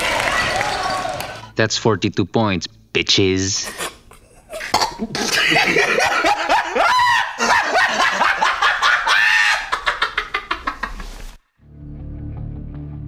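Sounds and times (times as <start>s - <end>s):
person screaming excitedly: 6.6s - 7.8s, 8.8s - 9.9s.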